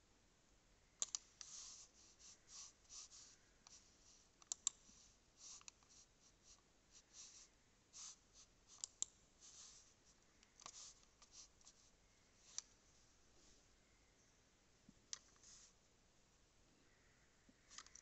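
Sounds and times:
sharp clicks: 0:01.0 - 0:01.5, 0:04.4 - 0:04.8.

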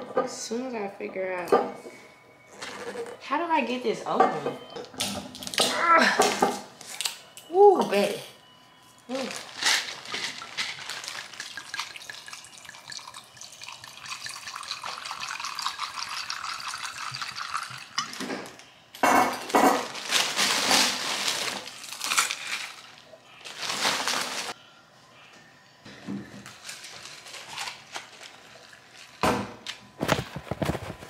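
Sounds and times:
plastic bag crinkling: 0:09.1 - 0:13.0, 0:19.5 - 0:24.6, 0:26.5 - 0:29.2
liquid pouring into cup of ice: 0:09.3 - 0:18.2.

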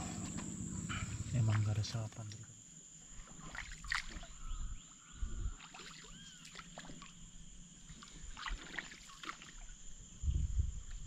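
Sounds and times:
water sloshing and splashing: 0:03.1 - 0:04.5, 0:05.6 - 0:10.0.

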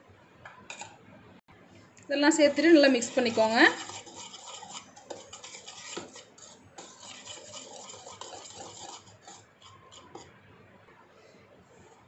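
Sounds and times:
whisk wires clicking on bowl: 0:02.0 - 0:10.3
whisk swishing in a bowl: 0:02.1 - 0:10.4.

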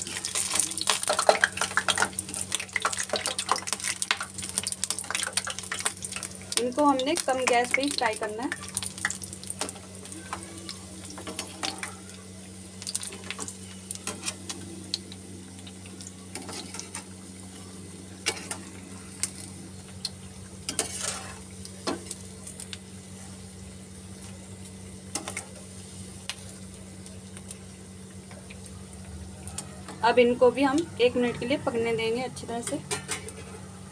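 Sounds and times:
oil sizzling with pops: 0:00.0 - 0:31.8, 0:32.4 - 0:33.9
steady low hum: 0:00.0 - 0:33.9.

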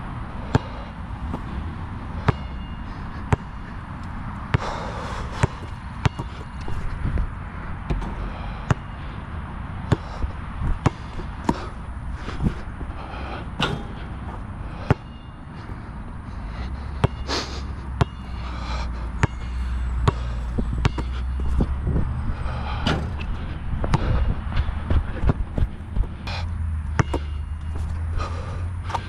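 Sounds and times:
low aircraft engine rumble: 0:00.0 - 0:29.0
basketball bouncing on hard court: 0:02.2 - 0:02.6, 0:03.3 - 0:03.5, 0:04.5 - 0:06.8, 0:07.9 - 0:08.9, 0:09.9 - 0:11.7, 0:14.8 - 0:15.3, 0:18.0 - 0:18.2, 0:19.2 - 0:21.8, 0:23.8 - 0:24.2, 0:24.9 - 0:27.4.

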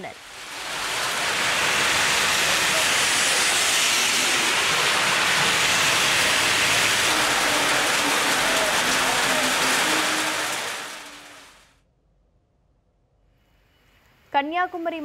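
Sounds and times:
heavy rain on paved road: 0:00.0 - 0:11.7.

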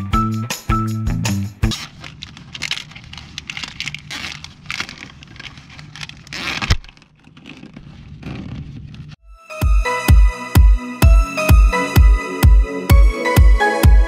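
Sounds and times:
plastic wire loom rustling and scraping: 0:01.7 - 0:09.2.

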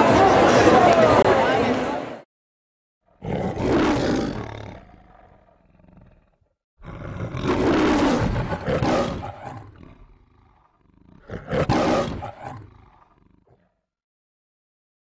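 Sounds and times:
lion roaring: 0:03.1 - 0:13.8.

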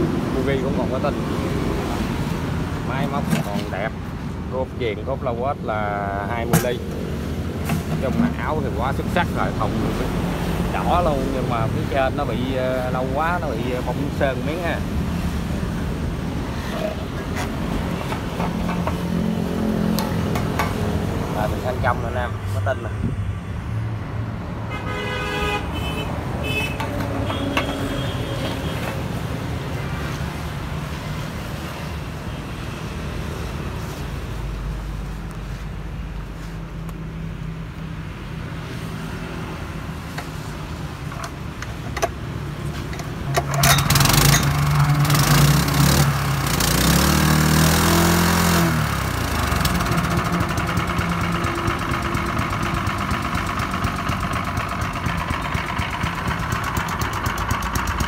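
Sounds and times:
small petrol engine running: 0:43.0 - 0:58.0.

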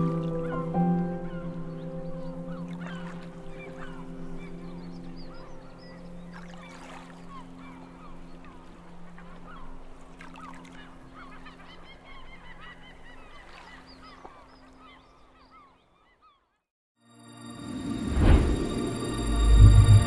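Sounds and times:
flock of birds calling: 0:00.4 - 0:06.0
steady low drone: 0:17.2 - 0:20.0.

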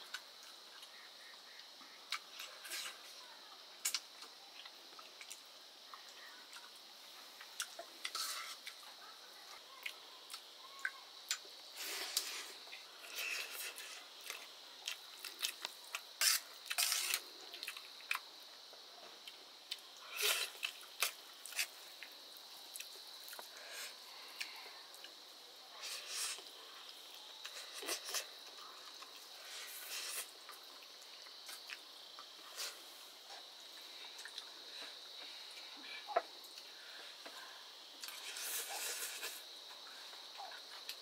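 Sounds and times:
wet chewing and lip smacks: 0:33.6 - 0:34.5.

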